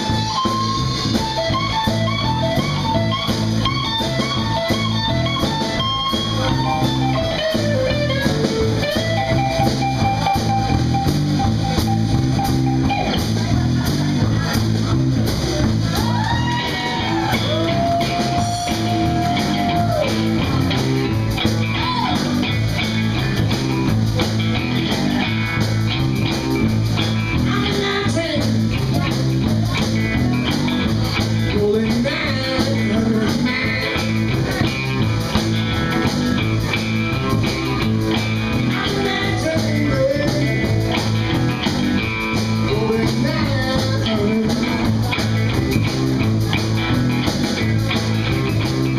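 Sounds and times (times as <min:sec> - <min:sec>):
blues rock band playing: 0:00.0 - 0:48.9
person singing: 0:31.4 - 0:34.8, 0:38.5 - 0:41.0, 0:42.6 - 0:45.1.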